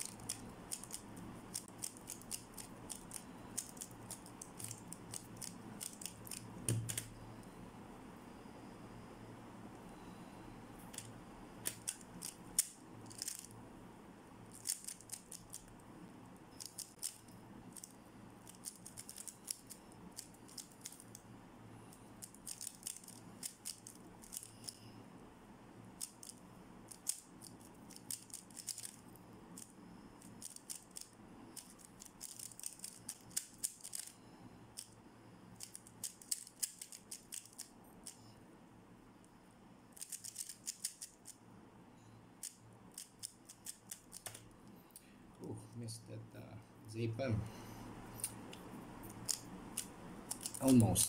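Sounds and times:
puzzle cube plastic clicks: 0:00.0 - 0:07.1, 0:10.9 - 0:13.5, 0:14.5 - 0:15.7, 0:18.5 - 0:21.2, 0:22.2 - 0:24.8, 0:26.0 - 0:29.0, 0:29.6 - 0:34.1, 0:35.6 - 0:38.2, 0:40.0 - 0:41.4, 0:49.1 - 0:50.7.

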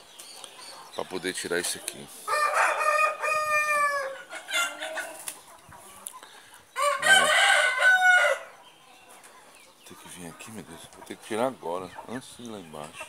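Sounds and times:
roosters crowing: 0:01.9 - 0:05.4, 0:06.5 - 0:09.1.

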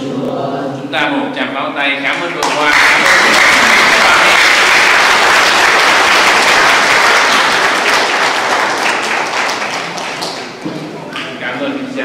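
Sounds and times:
congregation applauding: 0:02.1 - 0:11.4.

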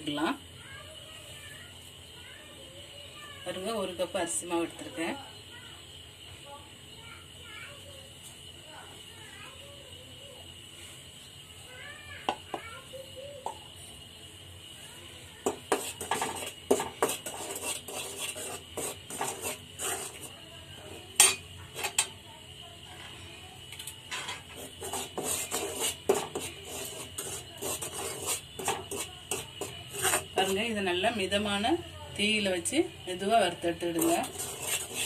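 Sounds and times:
metal ladle scraping pan: 0:15.4 - 0:20.3, 0:24.1 - 0:30.8, 0:33.8 - 0:35.0.

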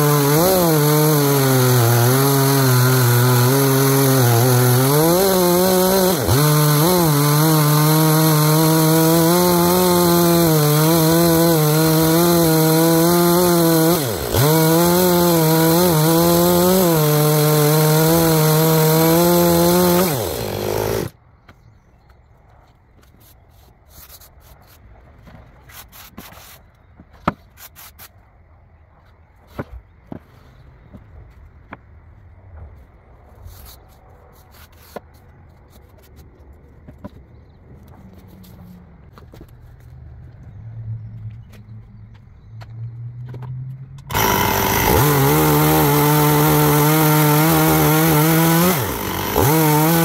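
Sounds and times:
chainsaw cutting log: 0:00.0 - 0:21.1, 0:44.0 - 0:50.0.

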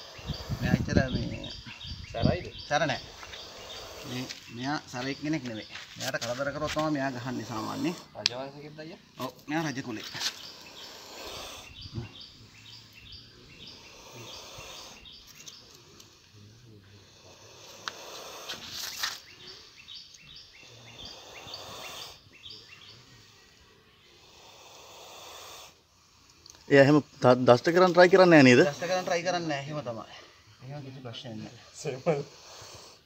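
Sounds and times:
small birds chirping: 0:00.0 - 0:33.0
snake hissing: 0:00.0 - 0:33.0.

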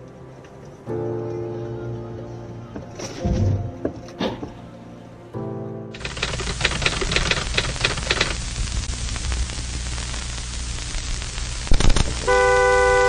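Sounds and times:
static-like hiss: 0:05.9 - 0:13.0
clicks: 0:06.0 - 0:08.4, 0:11.6 - 0:12.3
low hum: 0:06.0 - 0:13.0
short crackle: 0:06.0 - 0:13.0.

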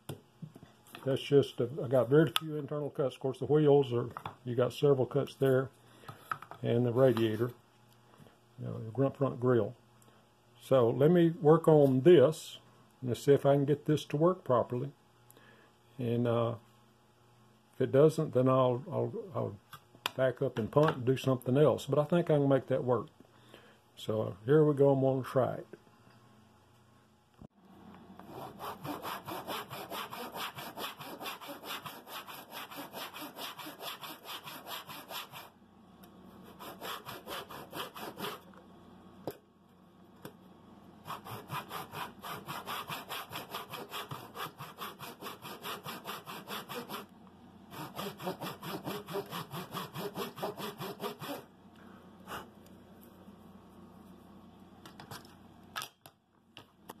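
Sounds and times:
handsaw cutting wood: 0:28.2 - 0:35.5, 0:36.4 - 0:38.4, 0:41.0 - 0:47.1, 0:47.7 - 0:51.5.

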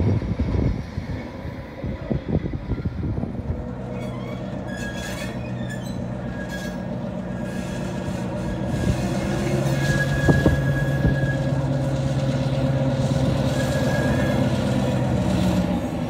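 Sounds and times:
diesel locomotive engine hum: 0:00.0 - 0:16.0
wheels squealing: 0:02.0 - 0:16.0
train clatter: 0:03.2 - 0:16.0.

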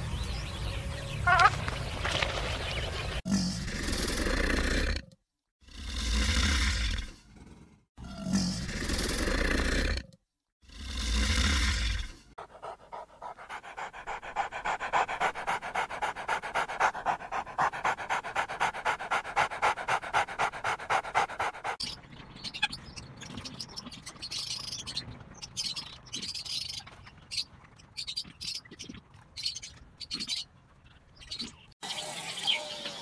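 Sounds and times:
small dog panting: 0:12.4 - 0:22.0.

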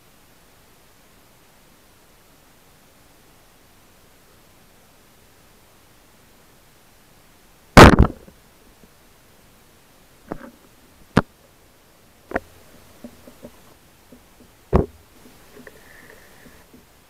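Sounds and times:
underwater knocks: 0:13.0 - 0:15.0
faint underwater ticks: 0:15.2 - 0:16.9.

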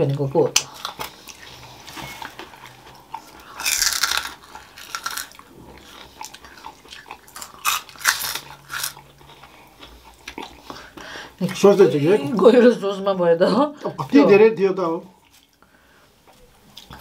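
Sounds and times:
crisps crunching while chewed: 0:00.5 - 0:11.6.

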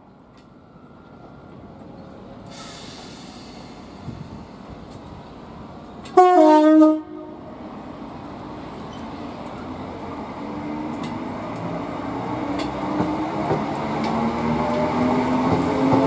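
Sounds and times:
train running noise: 0:00.0 - 0:16.0
train two-tone horn: 0:06.1 - 0:07.5.

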